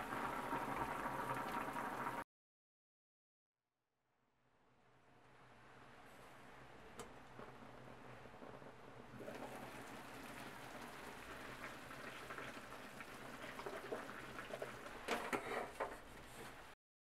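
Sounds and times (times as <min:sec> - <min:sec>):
meat and vegetables sizzling in pot: 0:00.0 - 0:02.2, 0:08.2 - 0:16.8.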